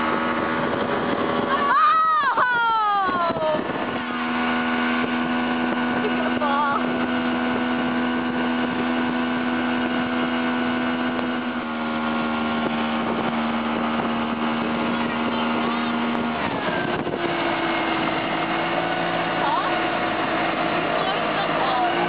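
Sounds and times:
motorboat engine running: 0.0 - 22.0
rush of boat wake: 0.0 - 22.0
wind on microphone: 0.0 - 22.0.

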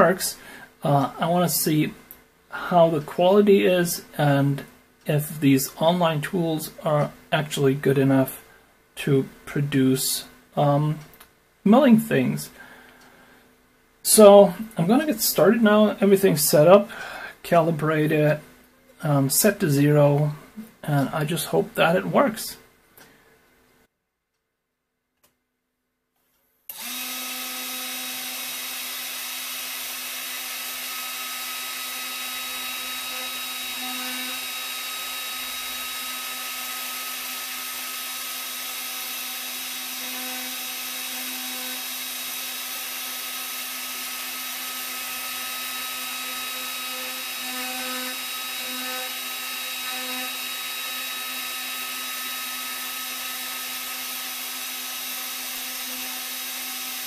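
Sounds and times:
spindle motor hum and whine: 26.7 - 57.0.

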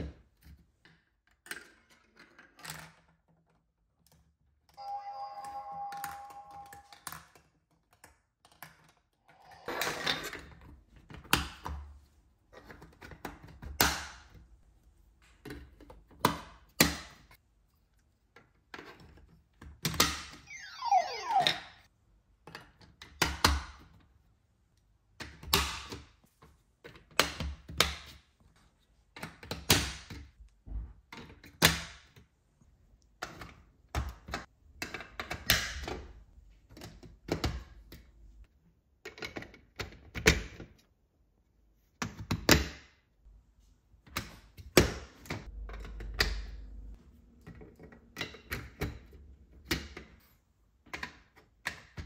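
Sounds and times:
falling electronic sound effect: 20.5 - 21.8.

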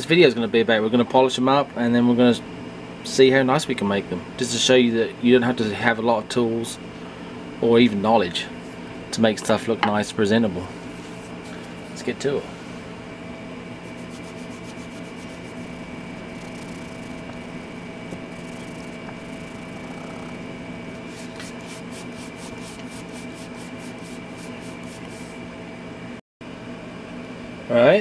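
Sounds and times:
steady hum: 10.4 - 26.2
cloth rubbing on plastic handle: 13.9 - 25.3.

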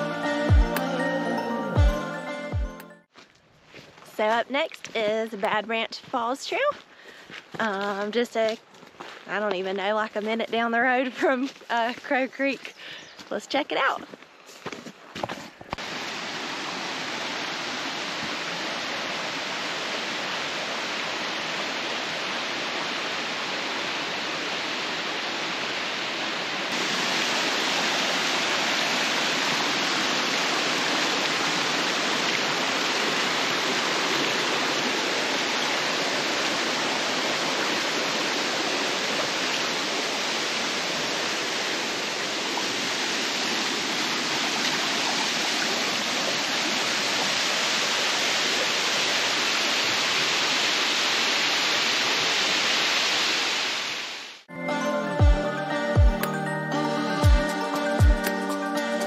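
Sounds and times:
waterfall rushing: 15.8 - 54.4.

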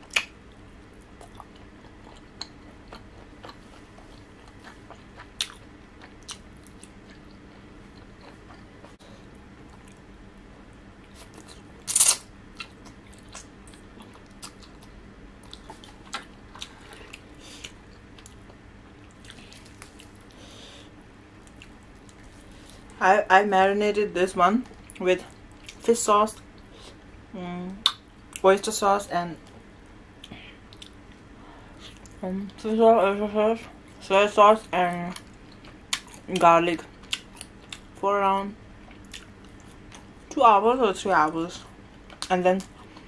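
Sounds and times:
person chewing and biting food: 1.0 - 9.0.

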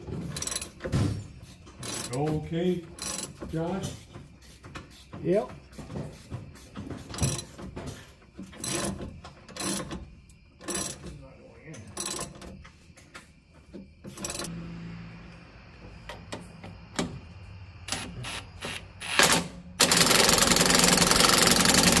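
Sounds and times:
tools clicking and knocking on metal: 0.0 - 14.5
impact wrench rattling: 0.1 - 3.6, 6.8 - 11.1, 14.1 - 14.5, 19.1 - 22.0.

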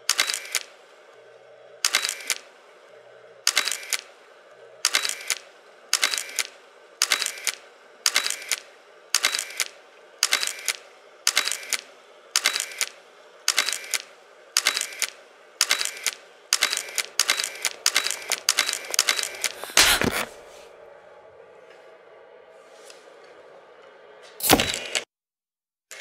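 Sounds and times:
camera shutter clicking: 0.1 - 0.7, 1.8 - 2.5, 3.5 - 4.1, 4.8 - 20.3, 24.4 - 25.0.

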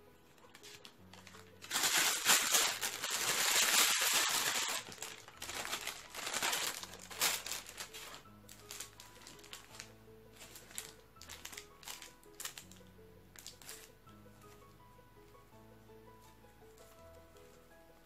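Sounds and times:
bag crinkling and rustling: 0.4 - 12.7.

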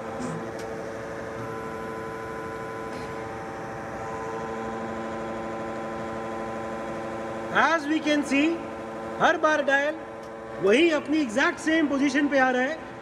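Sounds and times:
grinding machine humming: 0.0 - 13.0.

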